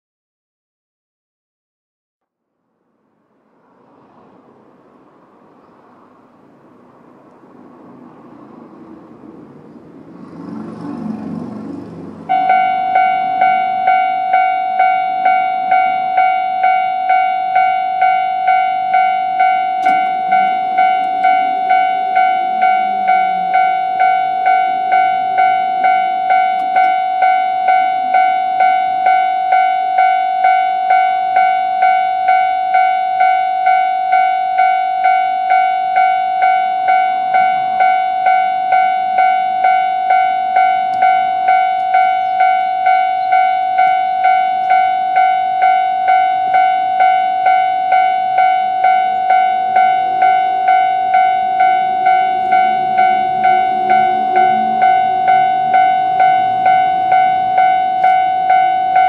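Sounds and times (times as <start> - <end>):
level crossing warning bell ringing: 12.2 - 59.0.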